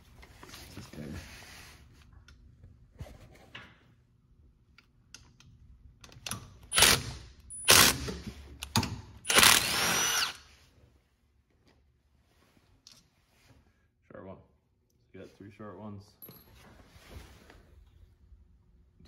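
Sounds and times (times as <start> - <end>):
power driver whirring: 9.3 - 10.5.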